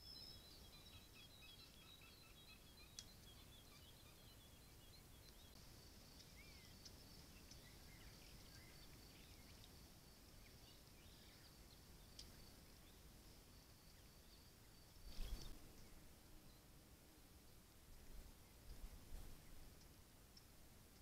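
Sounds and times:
distant bird chirps: 0.0s - 16.7s.

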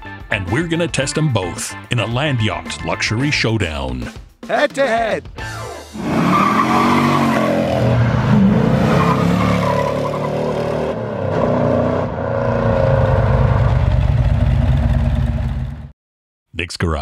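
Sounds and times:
car engine revving: 5.5s - 15.9s.

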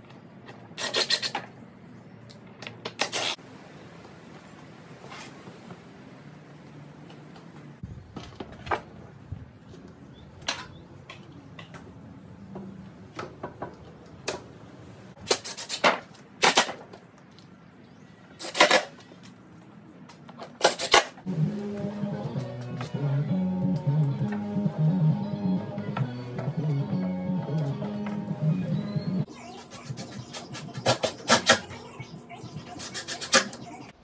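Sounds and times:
guitar music: 21.3s - 29.3s.

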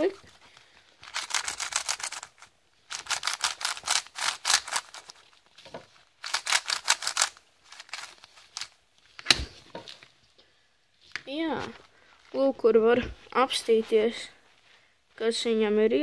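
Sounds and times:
speed cube clicking turns: 1.0s - 5.2s, 6.2s - 8.7s.

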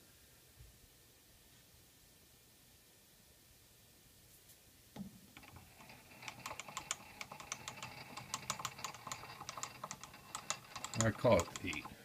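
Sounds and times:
light metal clicks and ticks: 5.4s - 12.0s.

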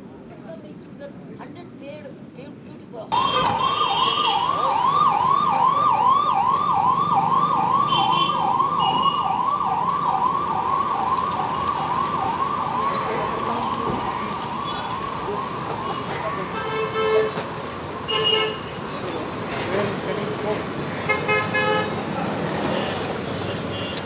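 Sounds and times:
police siren yelping: 3.1s - 16.0s.

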